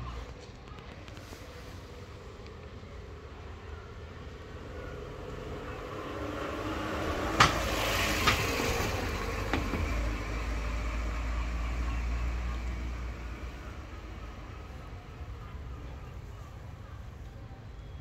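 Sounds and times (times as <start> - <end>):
motor vehicle passing: 4.5 - 14.4.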